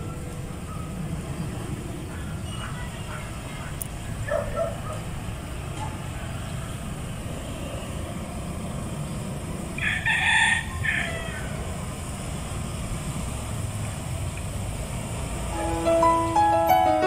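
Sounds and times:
rooster crowing: 9.8 - 11.6.

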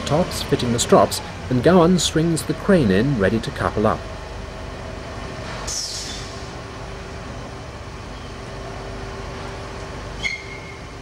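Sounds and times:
crane engine humming: 0.0 - 11.0
short high squeak: 10.2 - 10.9.

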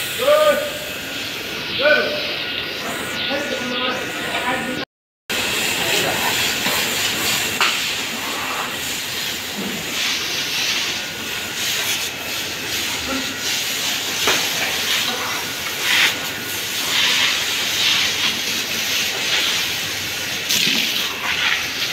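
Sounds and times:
hose spraying water: 5.3 - 21.9.

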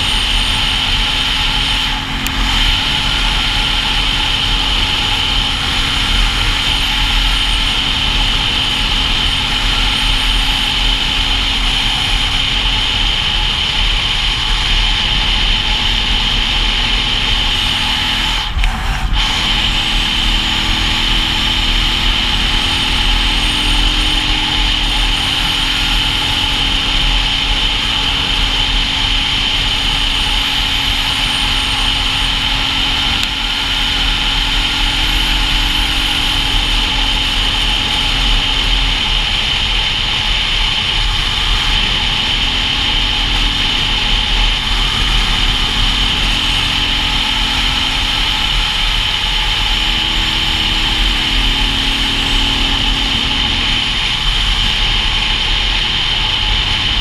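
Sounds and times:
motorcycle engine running: 0.0 - 57.0.

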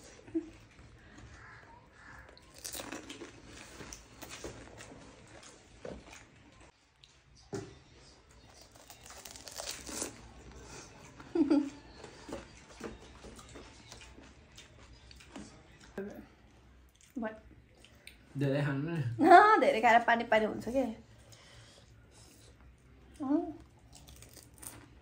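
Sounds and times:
crunching and chewing: 0.0 - 16.0, 23.6 - 25.0.

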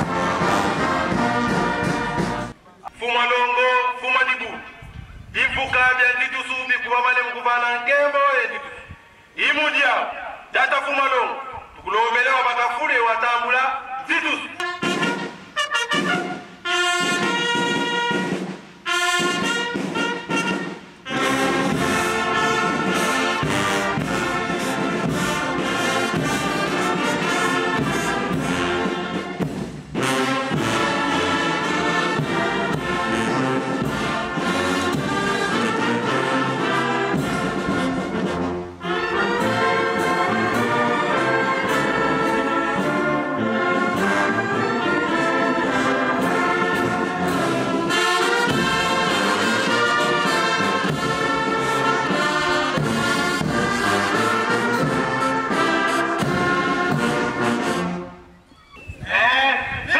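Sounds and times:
brass band playing: 0.0 - 2.6, 13.2 - 58.5.

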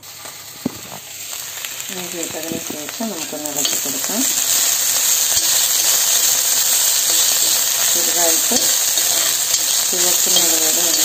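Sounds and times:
ginger sizzling in oil: 0.0 - 11.0
steel spoon stirring in wok: 3.2 - 11.0.

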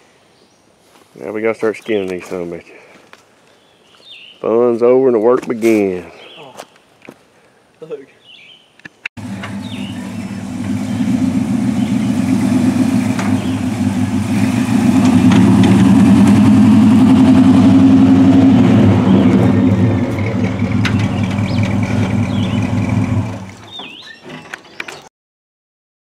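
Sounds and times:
pickup truck engine running: 9.2 - 23.8.

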